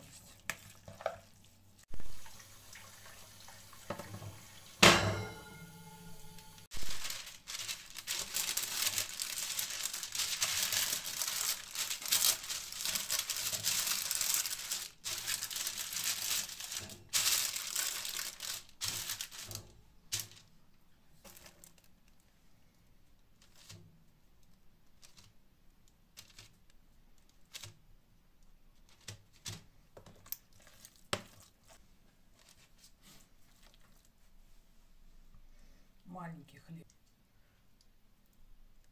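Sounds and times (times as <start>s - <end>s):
parchment paper rustling: 6.6s - 20.6s, 21.2s - 22.3s, 23.3s - 23.9s, 24.9s - 25.4s, 26.1s - 27.8s, 28.7s - 34.7s.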